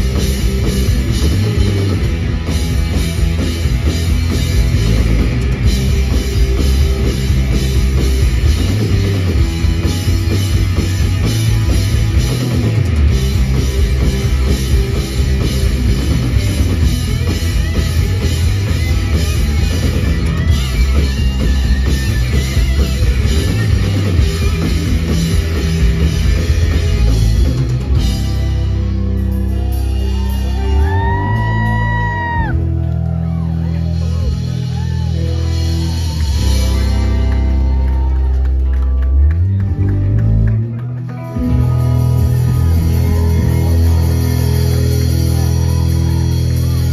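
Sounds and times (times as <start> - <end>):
bass guitar: 0.0 - 46.9
distorted electric guitars: 0.0 - 46.9
drum kit: 0.0 - 46.9.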